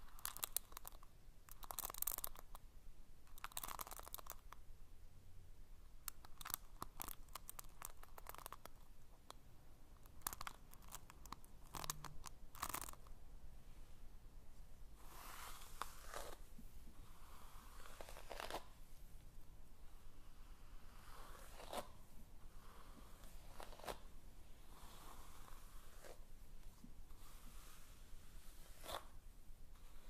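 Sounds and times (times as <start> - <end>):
soft crinkling noises: 0.0 - 2.6, 3.3 - 4.6, 6.0 - 9.4, 10.0 - 13.2.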